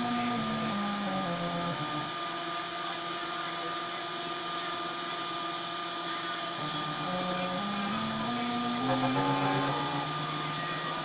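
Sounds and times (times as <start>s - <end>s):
steady whirring hiss: 0.0s - 11.0s
stepper motors whining: 0.0s - 11.0s.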